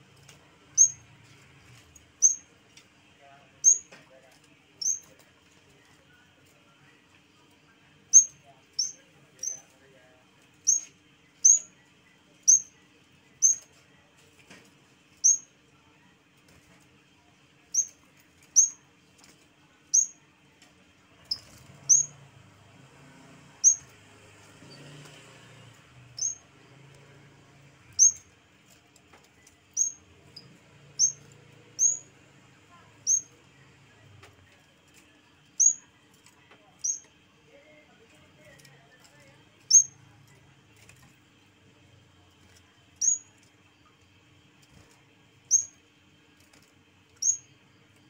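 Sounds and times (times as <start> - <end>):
bird high sharp chirps: 2.2 - 2.4, 21.3 - 22.1, 26.2 - 26.4, 28.0 - 28.2, 31.8 - 32.0, 33.0 - 33.3, 47.2 - 47.4.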